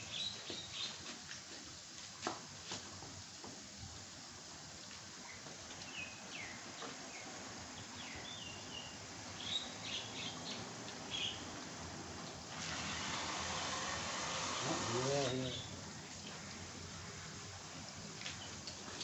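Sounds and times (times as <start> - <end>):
garden hose spraying water: 0.0 - 19.0
birds chirping: 5.3 - 11.5, 14.4 - 17.4.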